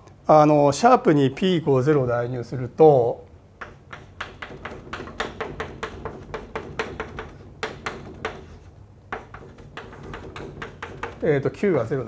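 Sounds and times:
chalk tapping on blackboard: 0:03.6 - 0:11.6.

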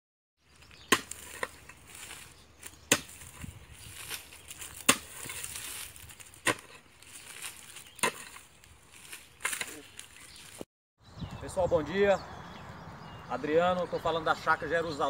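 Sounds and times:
digging tool striking hard ground: 0:00.7 - 0:08.5, 0:09.4 - 0:09.9.

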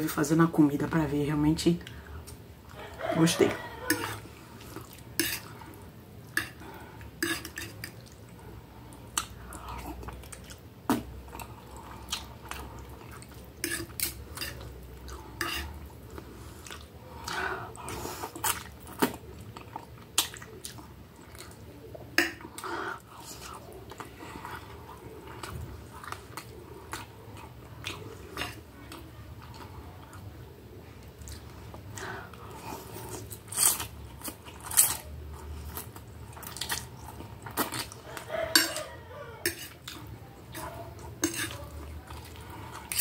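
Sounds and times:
chewing: 0:01.8 - 0:43.0
cutlery clinking on a plate: 0:38.5 - 0:39.8, 0:41.2 - 0:41.6.

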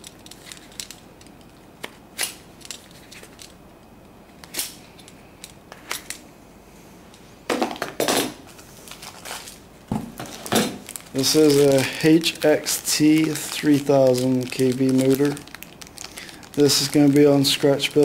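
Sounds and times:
plastic crinkling: 0:00.0 - 0:03.6, 0:08.6 - 0:18.0
packaging clicks and rustles: 0:10.2 - 0:18.0.

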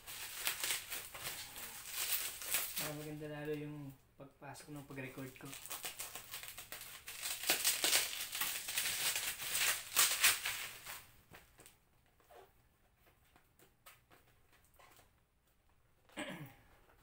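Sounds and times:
bubble wrap crinkling: 0:00.0 - 0:04.0, 0:04.7 - 0:11.8.

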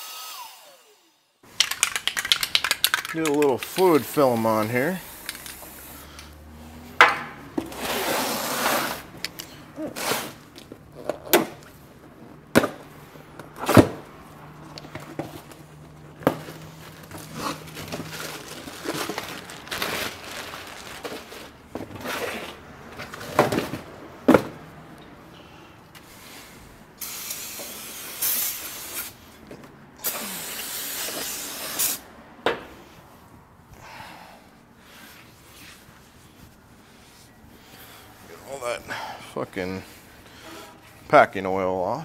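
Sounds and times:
aerosol can spraying: 0:30.0 - 0:32.0.

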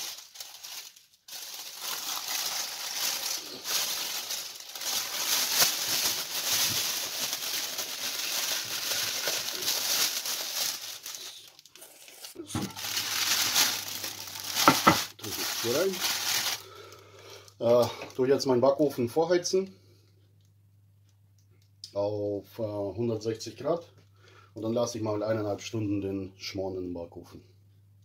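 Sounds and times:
plastic bag crinkling and rustling: 0:00.0 - 0:18.7.

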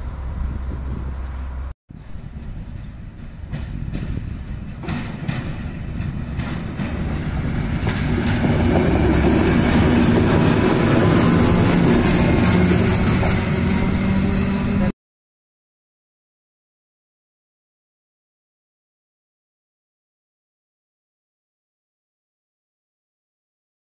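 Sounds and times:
diesel locomotive engine drone: 0:00.0 - 0:14.9
train wheels clicking on rails: 0:02.2 - 0:14.9.

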